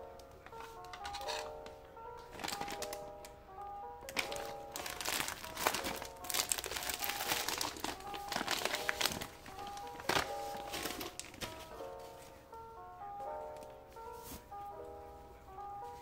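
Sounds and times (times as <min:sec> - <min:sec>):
light background music: 0:00.0 - 0:16.0
plastic packaging crinkling: 0:00.4 - 0:03.4, 0:04.0 - 0:12.3.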